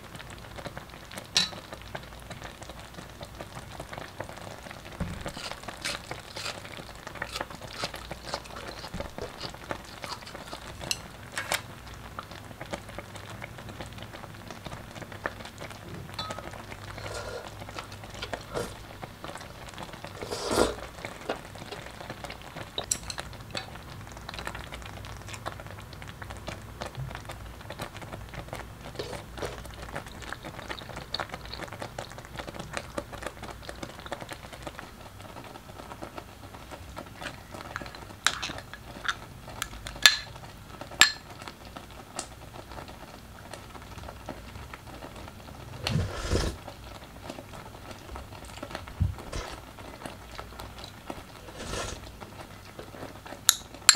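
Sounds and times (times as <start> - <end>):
congee bubbles popping: 28.4 - 34.5.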